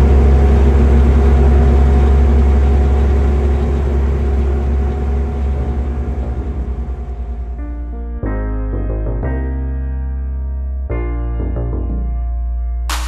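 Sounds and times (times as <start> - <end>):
skid steer engine drone: 0.0 - 7.9.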